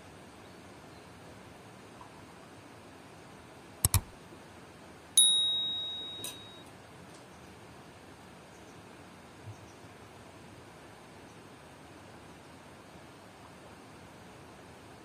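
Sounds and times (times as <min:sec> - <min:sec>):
double mouse click: 0:03.8 - 0:04.1
bright bell ding: 0:05.2 - 0:06.6.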